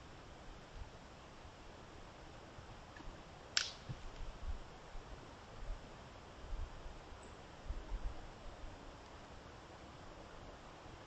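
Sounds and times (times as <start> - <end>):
faint microphone hiss: 0.0 - 11.0.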